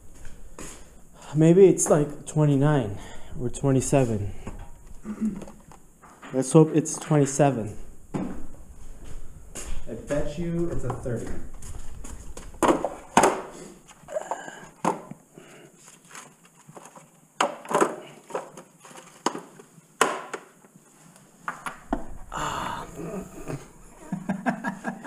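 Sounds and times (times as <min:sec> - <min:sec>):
rummaging: 0:15.8 - 0:19.8.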